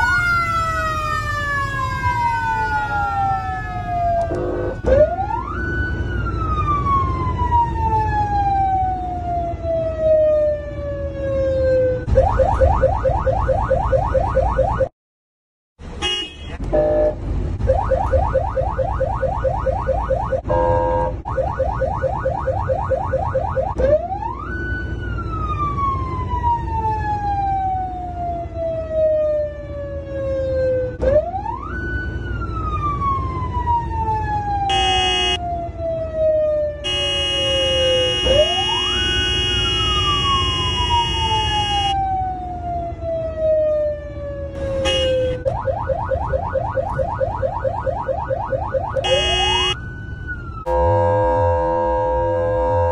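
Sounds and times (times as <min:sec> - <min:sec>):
emergency vehicle siren: 0:00.0 - 0:14.9, 0:16.7 - 0:52.9
horn blasts: 0:04.2 - 0:05.0, 0:20.4 - 0:21.2, 0:34.7 - 0:35.4, 0:36.8 - 0:42.0, 0:44.6 - 0:45.5, 0:49.0 - 0:49.8, 0:50.7 - 0:52.9.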